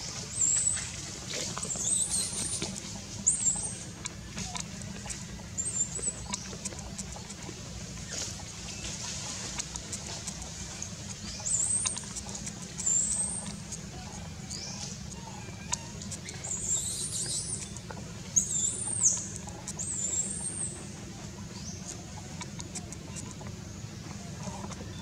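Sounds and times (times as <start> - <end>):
baby monkey squealing: 14.5 - 17.6.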